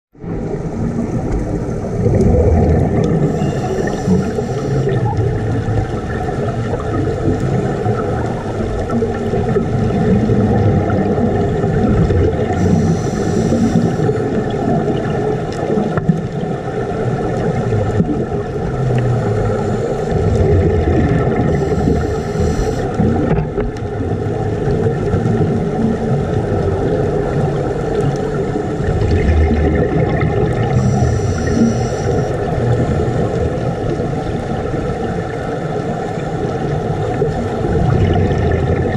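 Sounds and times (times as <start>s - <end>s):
underwater breathing rumble: 0.2s - 15.2s, 18.1s - 34.5s
regulator exhale hiss: 3.2s - 5.0s, 12.5s - 14.2s, 21.5s - 22.9s, 30.7s - 32.4s.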